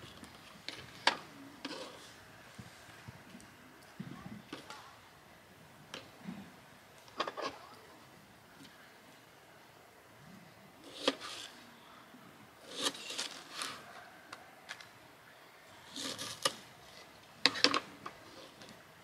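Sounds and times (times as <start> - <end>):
knife cutting on plastic board: 12.7 - 13.8, 15.9 - 16.6.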